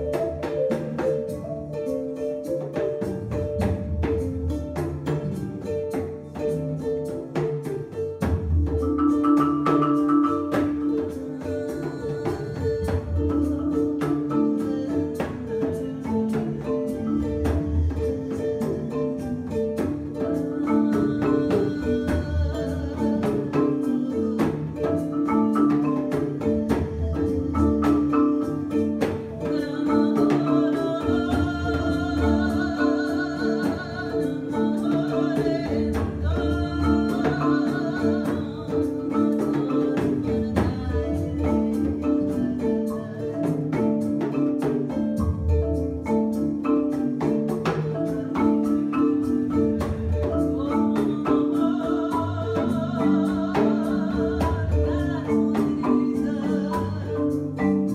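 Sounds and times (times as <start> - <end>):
high wavering melody: 0.0 - 7.9
hand drum strokes: 0.0 - 57.9
marimba pattern: 0.0 - 57.9.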